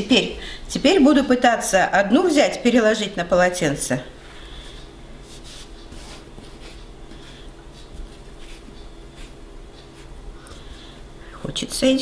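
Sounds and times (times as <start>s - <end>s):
fingers rustling through flour: 4.6s - 11.0s.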